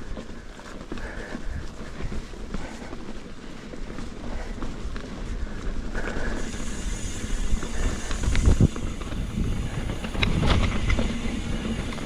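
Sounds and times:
bike rattling and knocking: 0:00.0 - 0:12.0
tyres rolling over gravel: 0:00.0 - 0:12.0
wind noise on microphone: 0:04.9 - 0:12.0.

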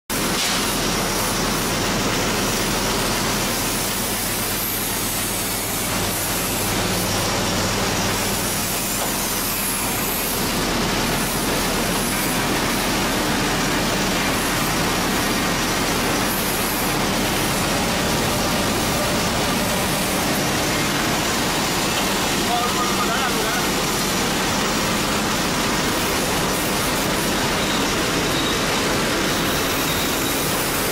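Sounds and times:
nut chopping machine running: 0:00.1 - 0:30.9
low electric motor hum: 0:03.6 - 0:27.4.

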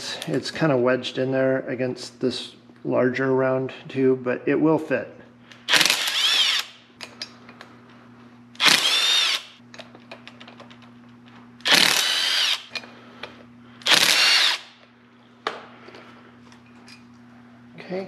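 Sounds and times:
impact wrench whirring: 0:05.6 - 0:06.8, 0:08.6 - 0:09.6, 0:11.6 - 0:12.9, 0:13.8 - 0:14.9.

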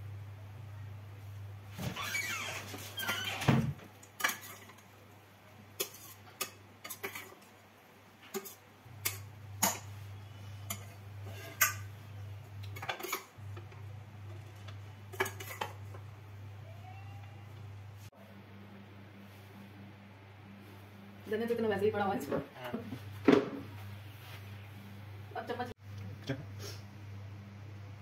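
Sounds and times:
low steady hum: 0:00.0 - 0:28.0
steel spoon scraping a pan: 0:04.2 - 0:04.8, 0:05.8 - 0:07.4, 0:08.3 - 0:11.9, 0:12.8 - 0:13.3, 0:15.1 - 0:15.8.

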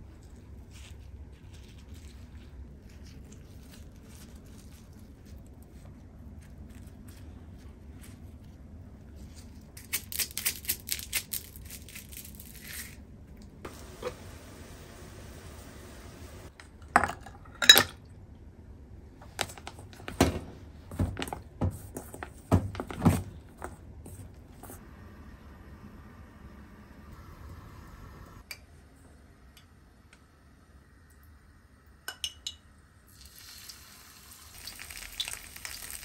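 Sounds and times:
crisp rustling: 0:00.1 - 0:13.0.

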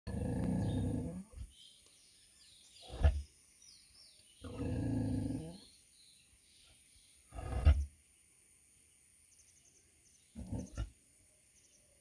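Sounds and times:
pig grunting: 0:00.1 - 0:01.4, 0:04.4 - 0:05.6, 0:07.3 - 0:07.9, 0:10.4 - 0:11.0.

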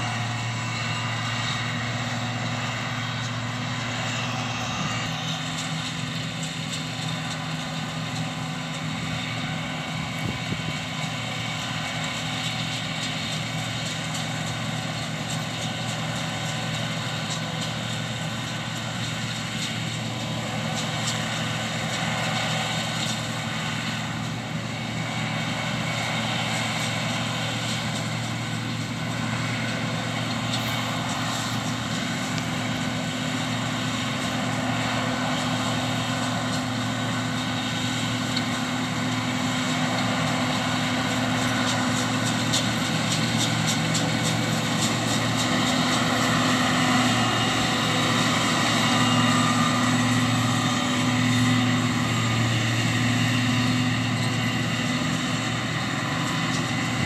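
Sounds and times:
combine harvester engine drone: 0:00.0 - 0:57.0
threshing machinery hum: 0:00.0 - 0:57.0.

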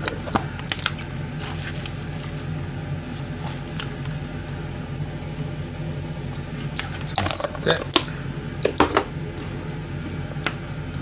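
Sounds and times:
steady low hum: 0:00.0 - 0:11.0
cabbage crunching in plastic container: 0:01.4 - 0:02.4, 0:03.0 - 0:04.1.

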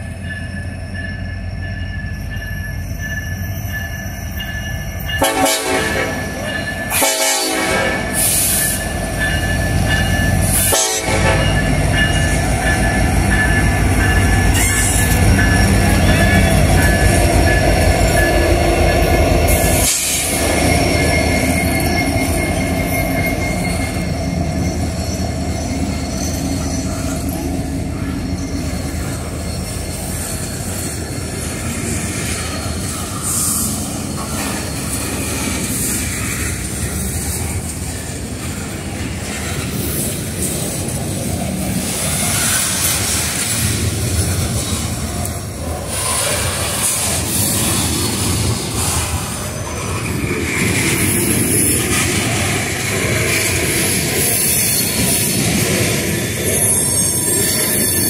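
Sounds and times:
diesel locomotive engines rumbling: 0:00.0 - 0:58.0
train horn blasts: 0:05.2 - 0:08.2, 0:10.6 - 0:11.6
wheels rolling on rails: 0:11.4 - 0:58.0.

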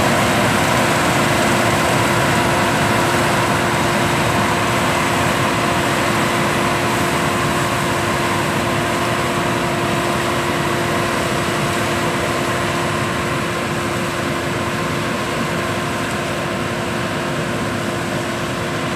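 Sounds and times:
combine harvester drone: 0:00.0 - 0:18.9.

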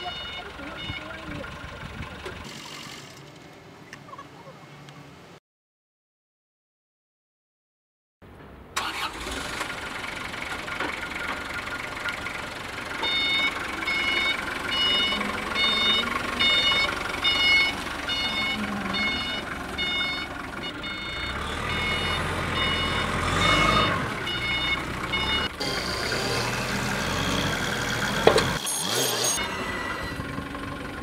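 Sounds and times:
backup alarm beeping: 0:00.0 - 0:01.4, 0:13.0 - 0:25.6, 0:28.6 - 0:30.2
diesel forklift running: 0:00.0 - 0:02.5, 0:08.8 - 0:31.0.

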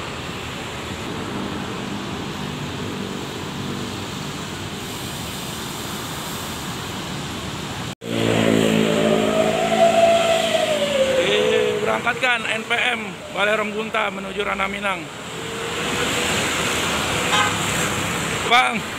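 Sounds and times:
engine revving: 0:08.0 - 0:13.7
whine: 0:08.0 - 0:14.0.

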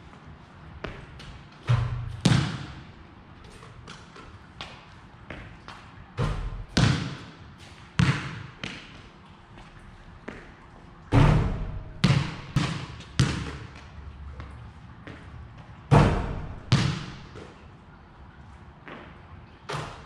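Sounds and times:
basketball bouncing on concrete: 0:00.8 - 0:02.9, 0:03.8 - 0:07.4, 0:08.0 - 0:09.0, 0:11.2 - 0:15.3, 0:15.9 - 0:17.6.

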